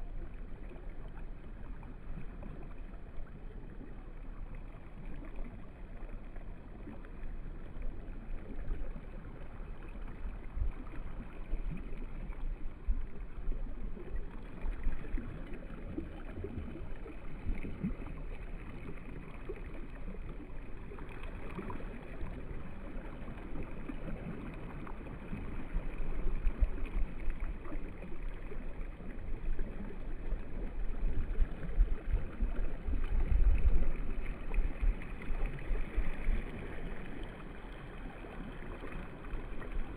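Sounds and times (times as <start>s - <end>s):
water lapping: 0.0s - 39.9s.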